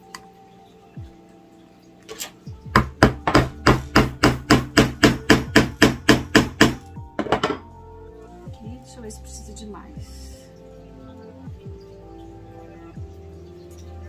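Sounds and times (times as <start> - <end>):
hammer tapping tack into wood: 2.7 - 7.5.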